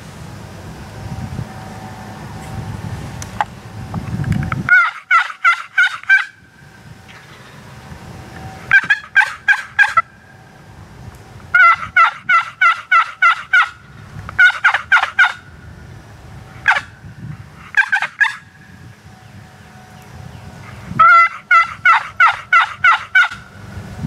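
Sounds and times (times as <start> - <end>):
low wind rumble: 0.0 - 24.0
turkey yelping: 4.7 - 6.4, 8.7 - 10.1, 11.5 - 15.4, 16.6 - 16.9, 17.7 - 18.5, 21.0 - 23.4.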